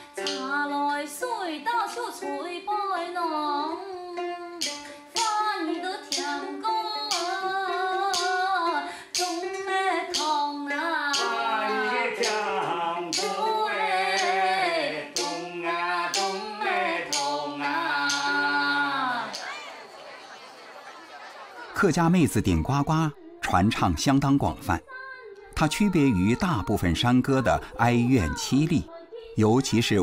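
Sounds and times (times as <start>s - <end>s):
woman singing solo: 0.0s - 12.6s, 13.2s - 19.4s
hand-held clappers clacking: 0.1s - 0.6s, 4.6s - 8.5s, 9.1s - 9.5s, 10.1s - 19.9s
lower second vocal line: 10.1s - 19.5s.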